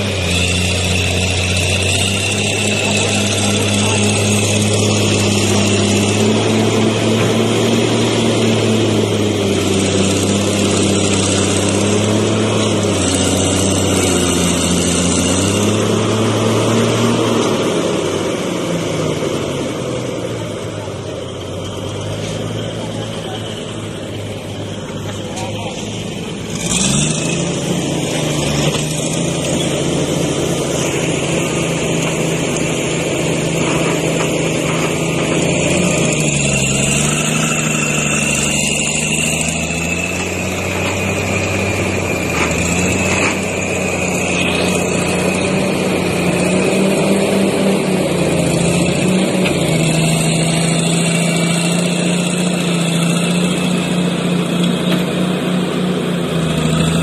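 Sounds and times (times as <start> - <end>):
heavy machinery diesel engines: 0.0 - 57.0
steady high whine: 19.4 - 54.7.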